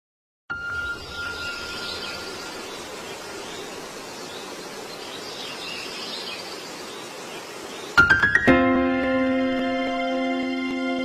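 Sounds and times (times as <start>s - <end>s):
faint high chirps: 0.5s - 3.6s.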